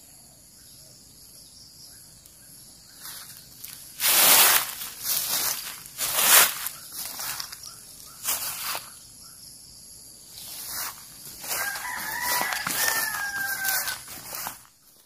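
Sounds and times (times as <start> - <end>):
footsteps through grass: 2.9 - 9.0, 10.3 - 15.0
rooster crowing: 11.4 - 14.6.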